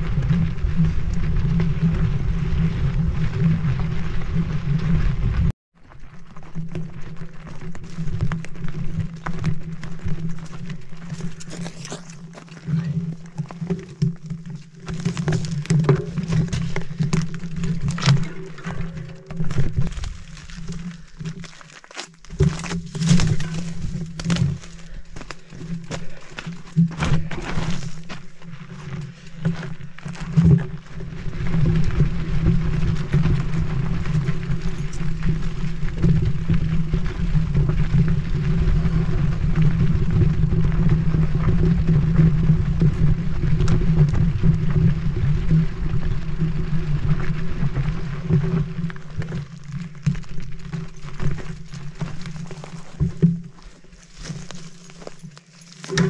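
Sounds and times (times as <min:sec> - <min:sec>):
wind on camera: 0:00.0 - 0:05.5, 0:22.3 - 0:55.2
bike clattering over rocks: 0:06.2 - 0:37.8, 0:48.9 - 0:56.0.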